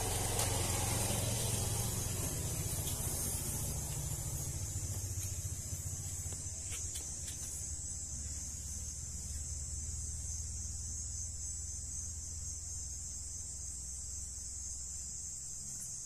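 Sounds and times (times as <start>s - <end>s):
insects trilling: 0.0s - 16.0s
low steady rumble: 0.0s - 16.0s.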